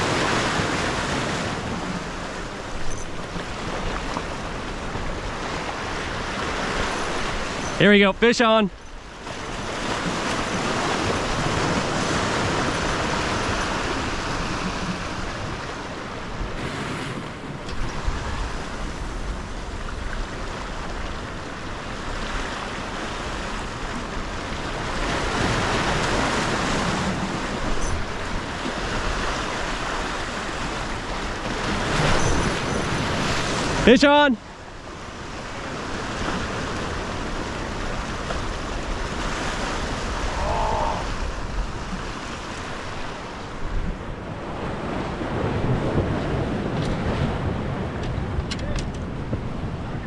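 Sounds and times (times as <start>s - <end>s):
ocean surf breaking: 0.0s - 50.0s.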